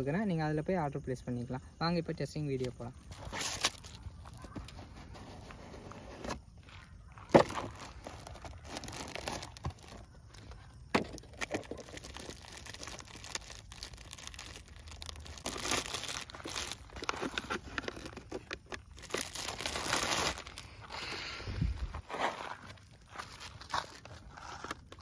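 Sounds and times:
plastic wrapping crinkling and tearing: 2.6s - 5.6s, 7.3s - 21.0s, 22.2s - 25.0s
cardboard box being opened: 3.1s - 6.5s, 7.3s - 10.4s, 11.0s - 20.6s.

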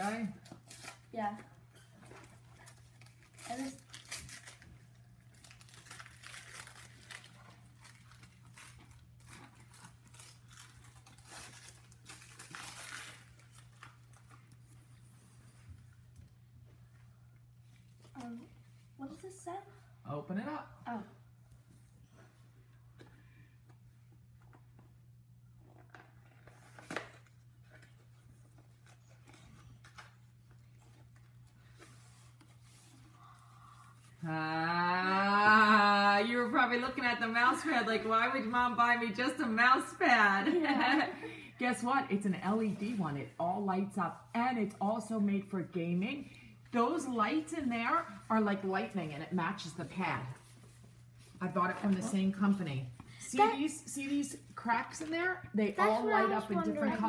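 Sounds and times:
wrapping paper tearing and rustling: 0.0s - 1.4s, 2.0s - 14.8s.

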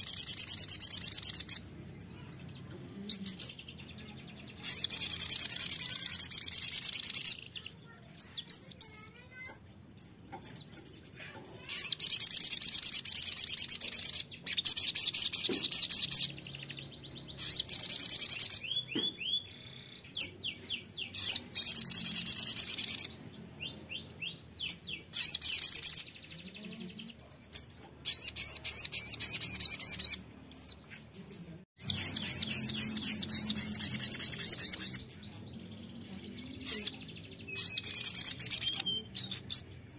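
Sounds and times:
bird twittering song: 0.0s - 39.9s
bird whistled notes: 31.8s - 35.1s, 37.5s - 39.6s.

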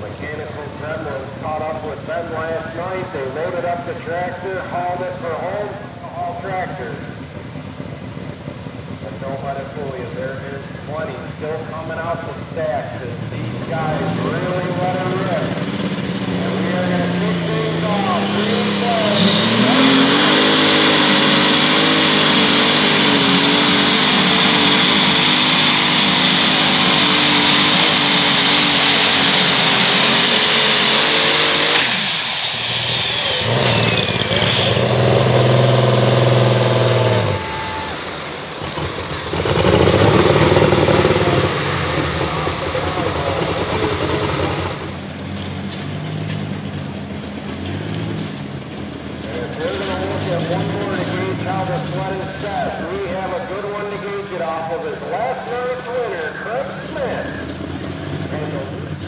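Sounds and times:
engine idling and revving: 0.0s - 59.0s
tractor engine at full power: 0.0s - 59.0s
turbo whistle: 37.1s - 38.2s.

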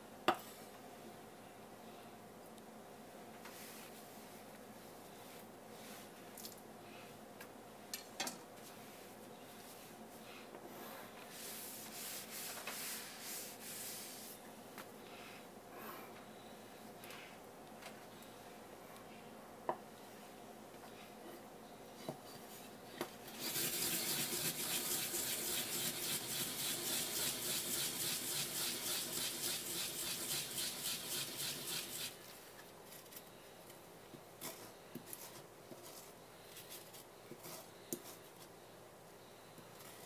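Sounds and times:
grater rasping rhythmically: 23.4s - 32.2s.

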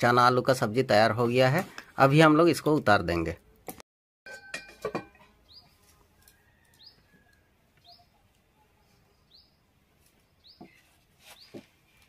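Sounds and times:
small bird chirping: 5.4s - 11.6s.

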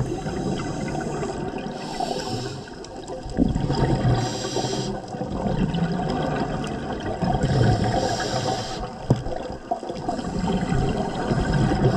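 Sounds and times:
regulator hissing inhale: 0.0s - 2.9s, 4.2s - 5.1s, 7.6s - 9.1s
exhaled bubbles gurgling: 0.0s - 11.9s.

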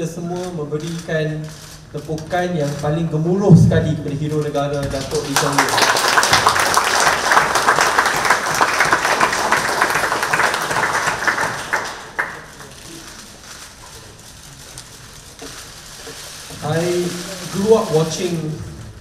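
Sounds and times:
low room noise: 0.0s - 19.0s
audience applauding: 5.1s - 12.9s.

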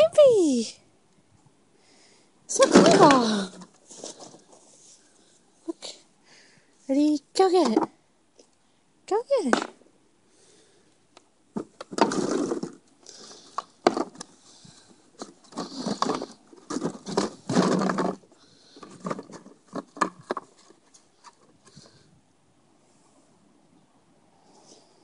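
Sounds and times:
plastic bottles rustling and knocking: 2.5s - 4.8s, 11.5s - 21.9s.

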